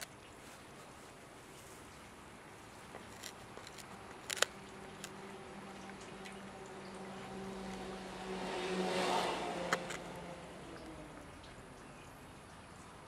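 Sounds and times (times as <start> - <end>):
dog gnawing on wood: 2.8 - 7.9, 8.9 - 10.3.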